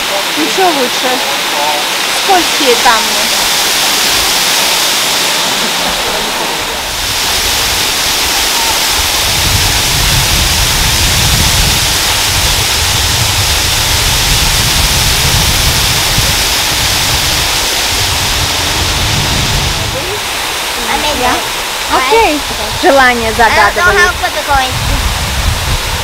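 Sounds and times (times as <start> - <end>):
waterfall pouring onto rocks: 0.0 - 26.0
deep low rumble: 9.2 - 23.5.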